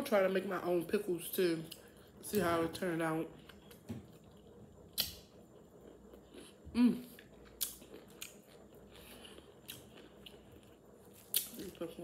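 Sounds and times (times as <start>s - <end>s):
crunchy chewing of pickle: 3.3s - 12.0s
person humming mm: 6.7s - 7.1s.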